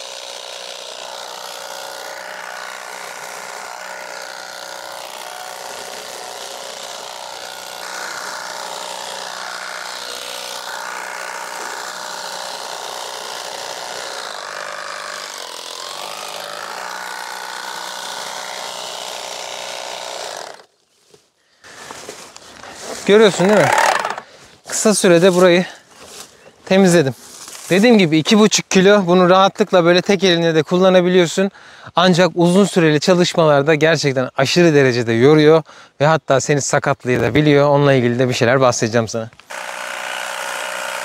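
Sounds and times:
motor and cutting blades whining: 0:00.0 - 0:20.7, 0:21.6 - 0:25.5, 0:39.4 - 0:41.0.

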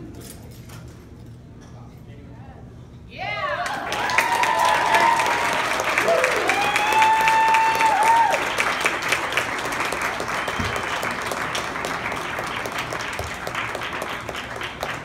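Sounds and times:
high drawn-out cheer: 0:03.2 - 0:14.1
audience applauding: 0:03.6 - 0:15.0.

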